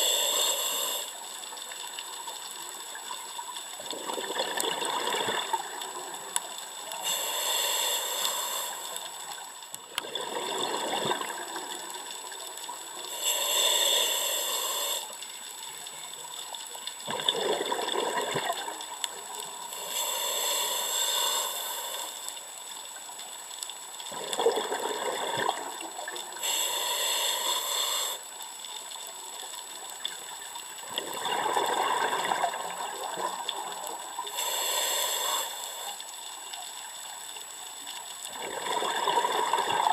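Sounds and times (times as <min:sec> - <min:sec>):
hissing regulator inhale: 0:00.0 - 0:01.2, 0:06.7 - 0:09.2, 0:13.0 - 0:15.2, 0:19.6 - 0:22.5, 0:26.4 - 0:28.3, 0:34.2 - 0:36.1.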